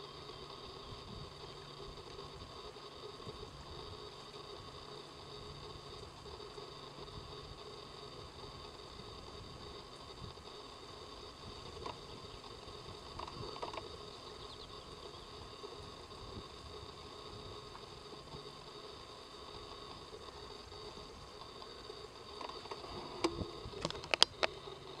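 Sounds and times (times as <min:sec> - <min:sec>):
faint outdoor hum: 0:00.0 - 0:25.0
soft ticks: 0:01.8 - 0:03.5, 0:11.7 - 0:14.0, 0:19.6 - 0:24.6.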